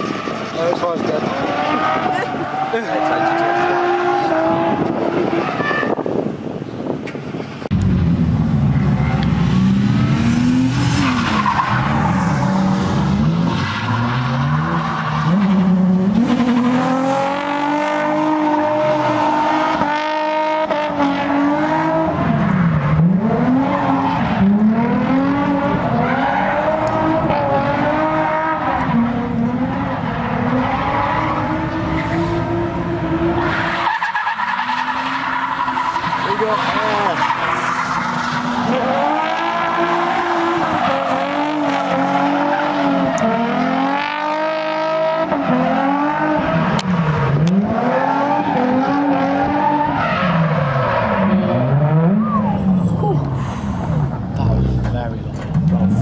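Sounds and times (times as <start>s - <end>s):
tyres squealing and skidding: 0.0s - 6.6s, 10.0s - 19.8s, 21.2s - 29.1s, 29.8s - 44.4s, 45.0s - 54.0s
car engine revving hard: 7.9s - 33.5s, 38.0s - 52.5s.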